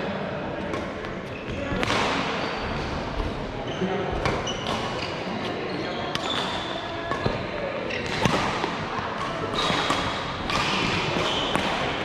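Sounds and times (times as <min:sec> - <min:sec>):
sports shoes squeaking on court: 0:03.7 - 0:07.2.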